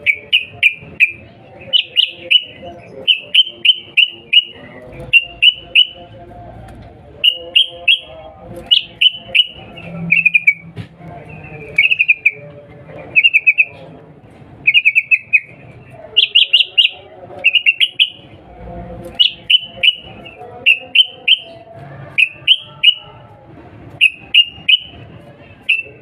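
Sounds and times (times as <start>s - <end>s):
bulbul sharp calls: 0.0s - 6.0s, 14.7s - 15.6s, 16.2s - 18.2s.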